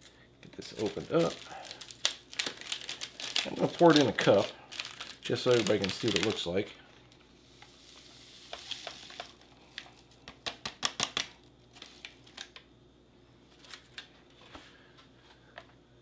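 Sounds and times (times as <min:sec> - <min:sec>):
foil pouch crinkling: 0:00.4 - 0:06.7, 0:07.8 - 0:12.6
powder pouring into mug: 0:07.8 - 0:11.2.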